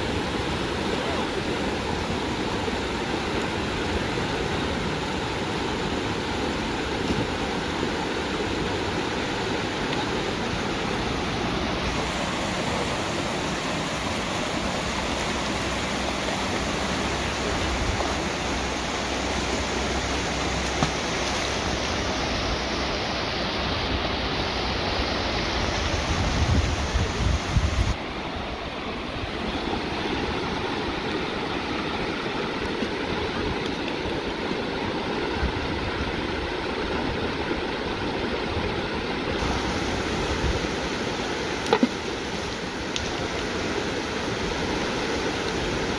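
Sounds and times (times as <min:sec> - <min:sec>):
river rushing over stones: 0:00.0 - 0:45.9.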